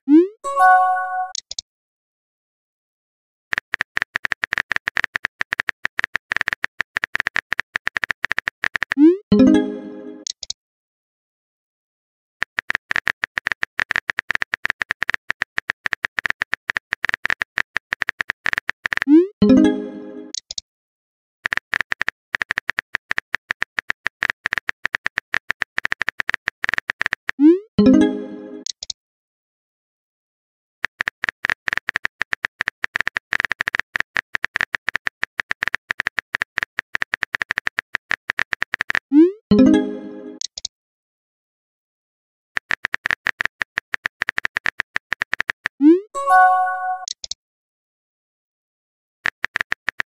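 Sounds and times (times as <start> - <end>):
keyboard typing clicks: 0.5 - 1.6, 10.2 - 10.6, 40.4 - 40.7, 46.2 - 47.4.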